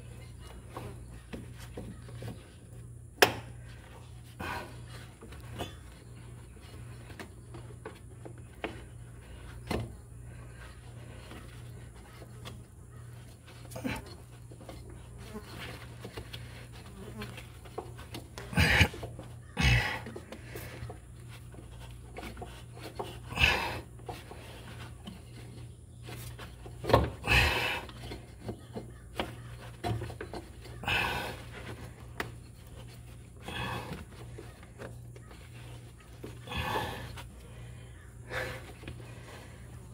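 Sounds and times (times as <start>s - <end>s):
steady low hum: 0.0s - 39.9s
man breathing hard: 23.2s - 24.4s, 27.2s - 28.1s, 30.8s - 32.0s, 33.4s - 34.6s, 36.3s - 39.9s.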